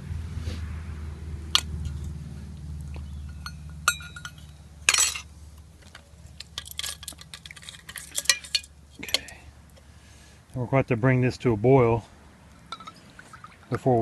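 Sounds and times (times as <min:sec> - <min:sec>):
light metal clinks: 0:02.9 - 0:05.3, 0:06.3 - 0:09.8, 0:12.7 - 0:13.6.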